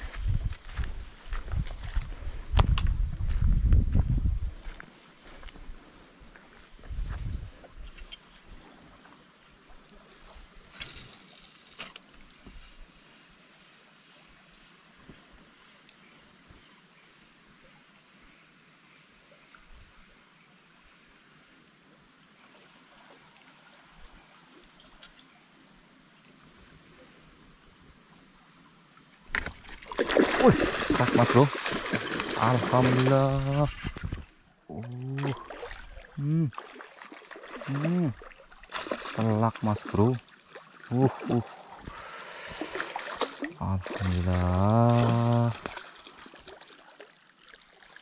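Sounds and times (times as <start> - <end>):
high-pitched insect drone: 19.4 - 46.4.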